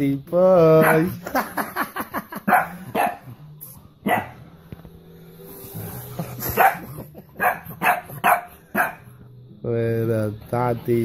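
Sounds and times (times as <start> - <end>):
dog barking: 0.8 - 1.2, 2.5 - 3.3, 4.0 - 4.4, 6.4 - 9.1.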